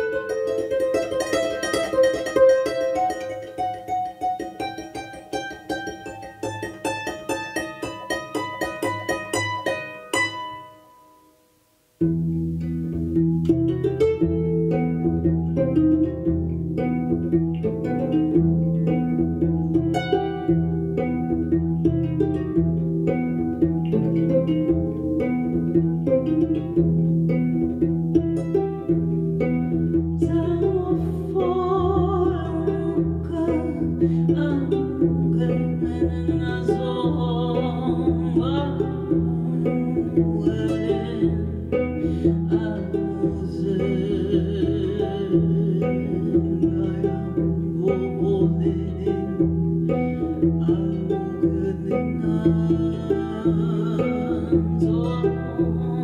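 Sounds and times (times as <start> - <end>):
plucked harp: 0.0 - 56.0
woman singing: 30.2 - 56.0.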